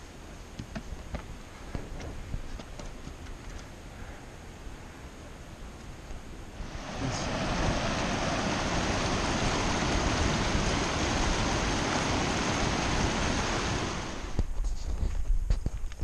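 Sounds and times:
creek rushing over boulders: 6.4s - 14.5s.

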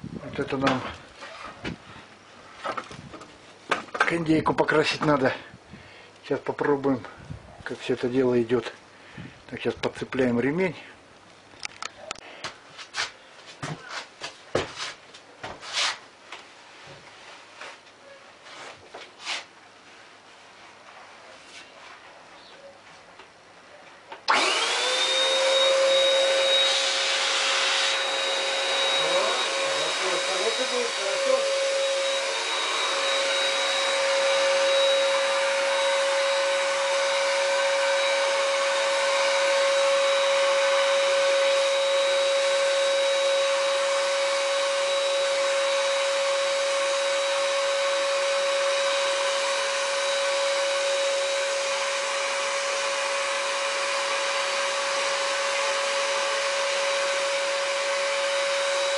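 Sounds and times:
paint sprayer turbine whine: 24.3s - 58.9s.

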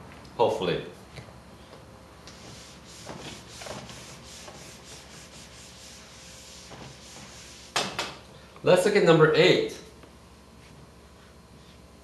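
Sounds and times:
eraser rubbing whiteboard: 2.3s - 8.0s.

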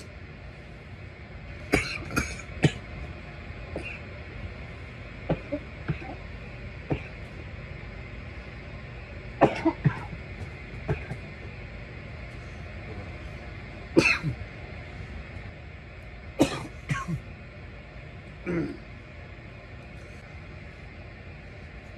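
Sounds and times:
low background hum: 0.0s - 21.9s
man coughing: 1.7s - 2.9s, 3.7s - 4.0s, 5.3s - 6.3s, 6.9s - 7.3s, 9.4s - 10.2s, 10.8s - 11.3s, 14.0s - 14.4s, 16.4s - 17.3s, 18.4s - 18.9s.

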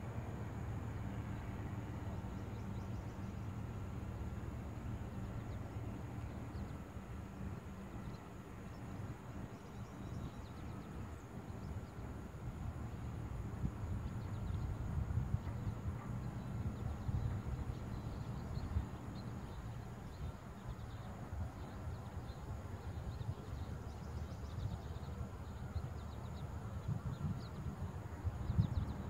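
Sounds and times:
wind buffeting microphone: 8.8s - 29.0s.

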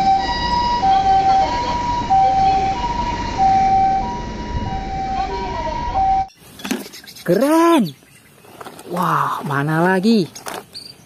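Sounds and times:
two-tone ambulance siren: 0.0s - 6.3s
low engine and traffic noise: 0.0s - 6.8s.

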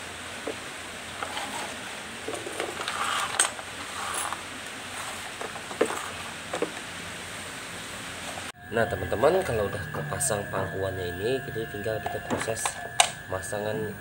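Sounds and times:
rustling: 0.5s - 7.2s.

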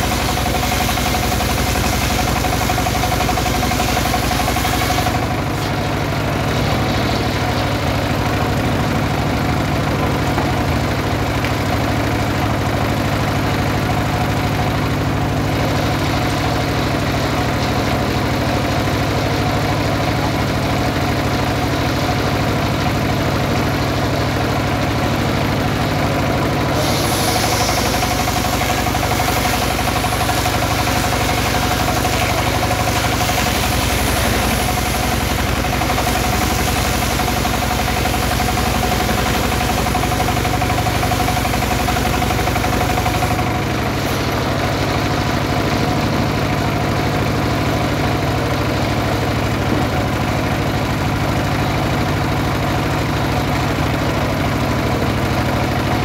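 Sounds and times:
circular saw cutting log: 0.0s - 14.5s, 24.7s - 46.2s
diesel engine running: 0.0s - 56.0s.

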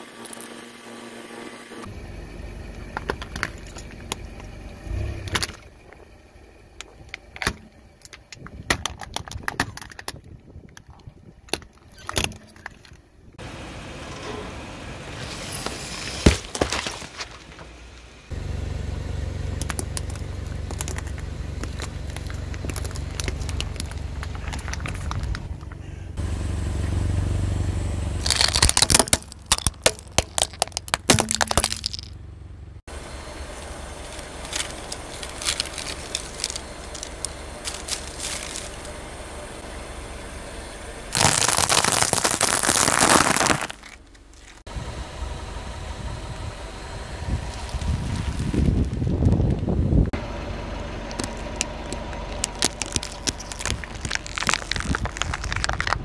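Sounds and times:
car engine rumbling: 0.0s - 56.0s
tyre crushing plastic: 15.6s - 17.7s, 19.6s - 25.6s, 28.2s - 32.1s, 34.0s - 39.0s, 41.1s - 44.7s, 51.1s - 56.0s.

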